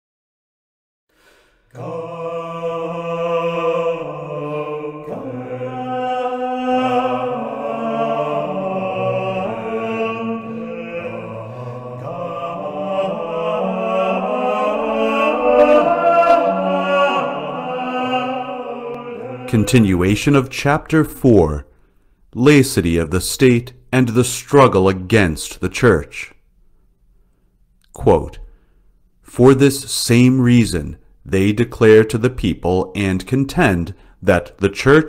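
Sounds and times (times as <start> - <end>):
choir singing slow chant: 1.7 - 20.4.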